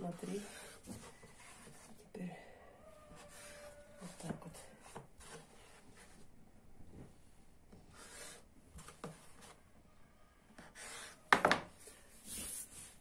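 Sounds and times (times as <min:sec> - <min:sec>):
knife knocking on wooden board: 0:11.3 - 0:11.7.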